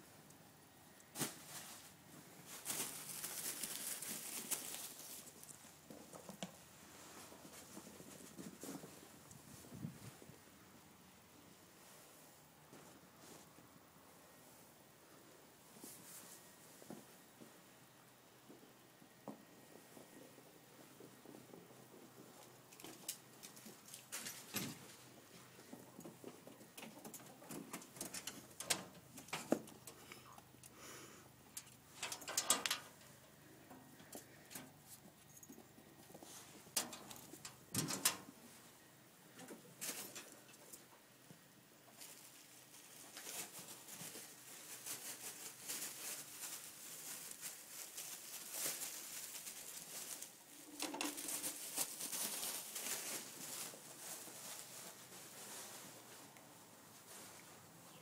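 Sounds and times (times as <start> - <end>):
ferrets scampering on floor: 1.1 - 9.3, 21.0 - 30.8, 31.4 - 38.4, 41.9 - 56.4
bubble wrap crinkling: 1.2 - 5.8, 42.0 - 56.0
paw patter and scrabbling: 1.2 - 10.0, 19.9 - 30.0, 41.9 - 55.8.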